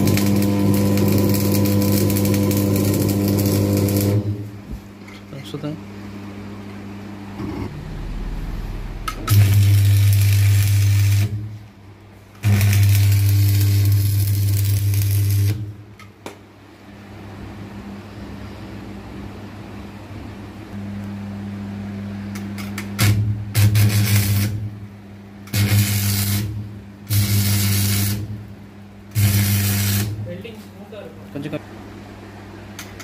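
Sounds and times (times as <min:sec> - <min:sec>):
welding arc crackling: 0:00.0 - 0:04.5, 0:09.0 - 0:11.6, 0:12.4 - 0:15.9, 0:22.6 - 0:24.8, 0:25.5 - 0:28.5, 0:29.1 - 0:30.6
welding machine humming: 0:00.0 - 0:05.8, 0:07.7 - 0:16.1, 0:22.2 - 0:31.6.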